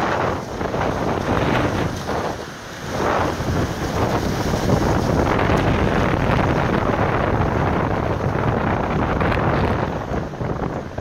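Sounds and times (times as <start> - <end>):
wind gusting over microphone: 0.0 - 11.0.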